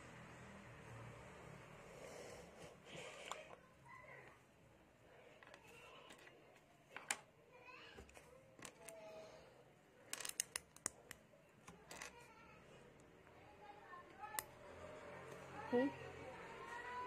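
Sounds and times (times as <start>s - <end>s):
plastic toy bricks clicking: 10.1s - 12.2s.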